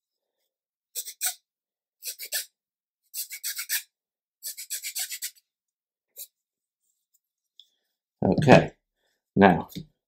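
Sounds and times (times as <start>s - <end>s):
hand file rasping: 3.1s - 5.4s.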